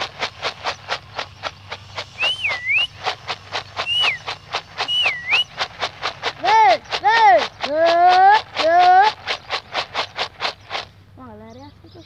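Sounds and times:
rapid even ticking: 0:00.0 - 0:11.2
person whistling: 0:02.1 - 0:03.1, 0:03.8 - 0:05.5.

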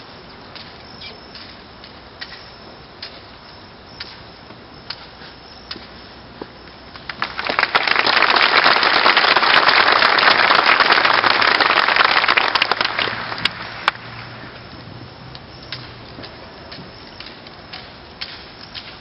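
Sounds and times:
audience applauding: 0:07.1 - 0:14.4.

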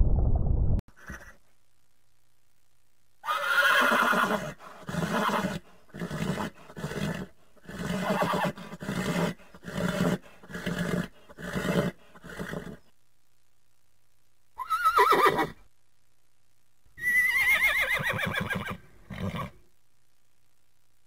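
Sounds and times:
horse neighing: 0:03.2 - 0:12.8, 0:14.6 - 0:15.6, 0:17.0 - 0:19.6.

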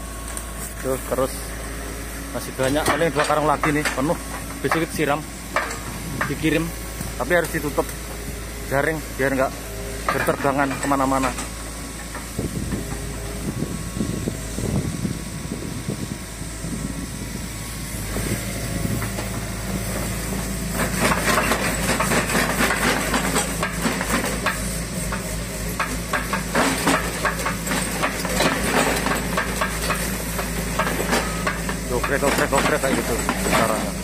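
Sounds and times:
diesel engine running: 0:00.0 - 0:34.0
clatter of knocks and rattles: 0:20.7 - 0:33.9.

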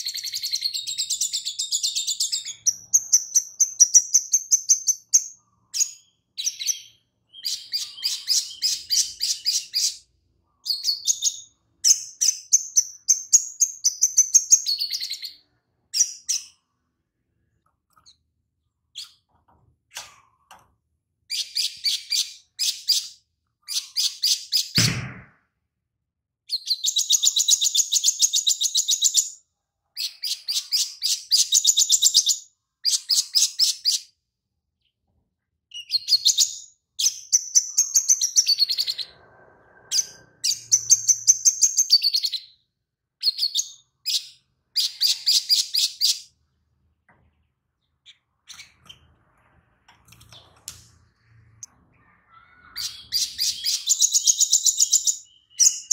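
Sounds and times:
sunbird singing: 0:51.2 - 0:55.9.

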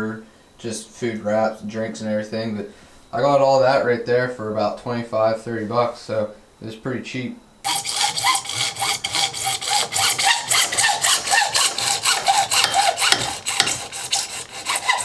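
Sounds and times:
hacksaw cutting plastic pipe: 0:07.7 - 0:15.0.

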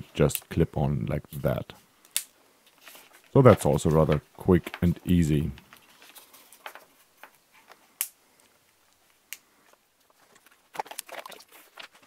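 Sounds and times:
plastic balls snapping on sharp clicks: 0:02.0 - 0:02.4, 0:08.0 - 0:09.5.

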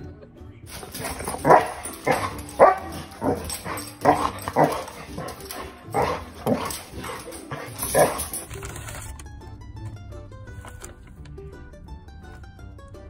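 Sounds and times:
dog barking: 0:00.7 - 0:08.5.

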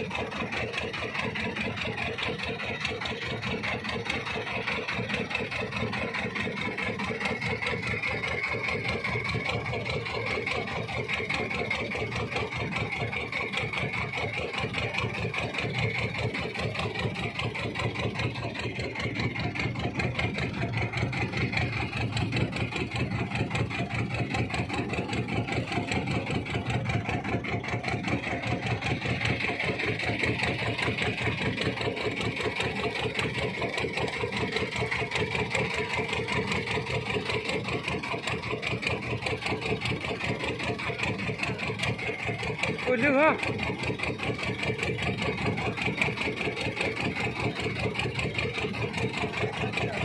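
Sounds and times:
boat engine chugging: 0:00.0 - 0:50.0.

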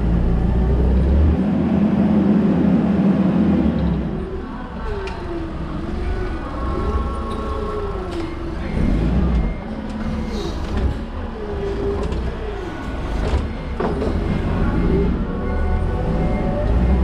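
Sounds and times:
forklift engine and hydraulics: 0:00.0 - 0:17.0.

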